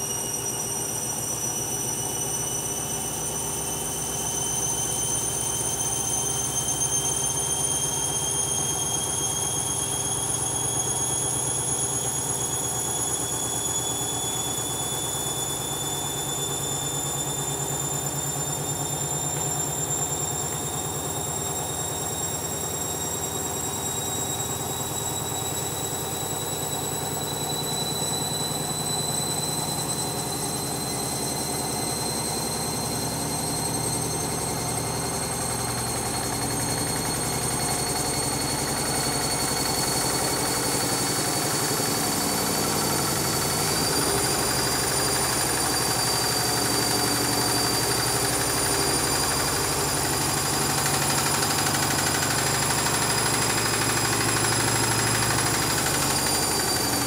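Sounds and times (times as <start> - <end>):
washing machine motor whining: 0.0 - 57.0.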